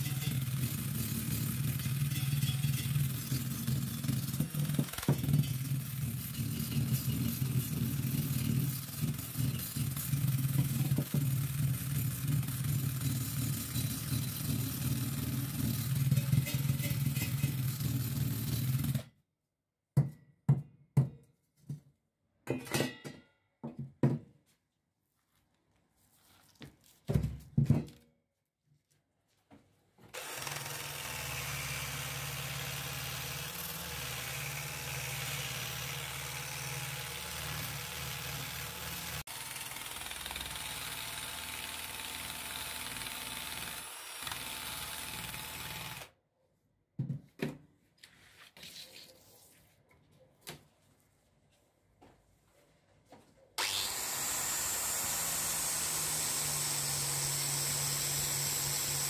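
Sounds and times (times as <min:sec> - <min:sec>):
drill wire brush on metal: 0:00.0 - 0:19.0, 0:30.2 - 0:46.1, 0:53.6 - 0:59.0
tools knocking and clattering: 0:22.4 - 0:24.2.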